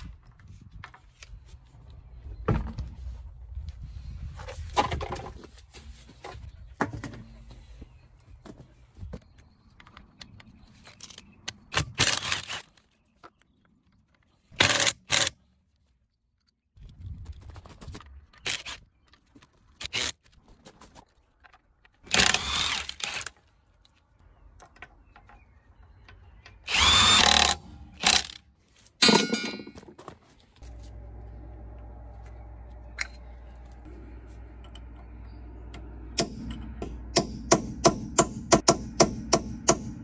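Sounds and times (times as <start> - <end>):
steady low hum: 30.6 - 40.0
impact wrench hammering: 36.2 - 40.0.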